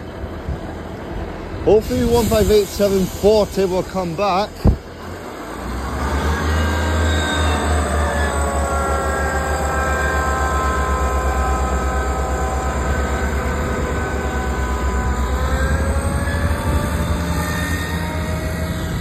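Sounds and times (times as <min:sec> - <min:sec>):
diesel train engine throb: 0:00.0 - 0:19.0
whining tones falling in pitch: 0:05.5 - 0:19.0.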